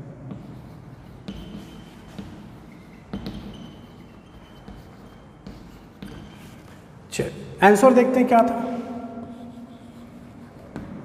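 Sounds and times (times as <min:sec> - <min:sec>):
chalk scratching on chalkboard: 0:00.3 - 0:06.9, 0:08.5 - 0:11.0
sharp chalk taps: 0:00.3 - 0:06.9, 0:09.2 - 0:11.0
thin high squeak: 0:02.7 - 0:06.8.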